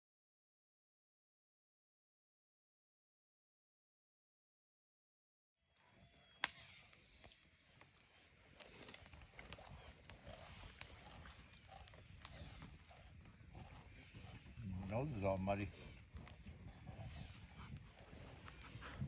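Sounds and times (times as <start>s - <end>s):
insects trilling: 5.6s - 19.0s.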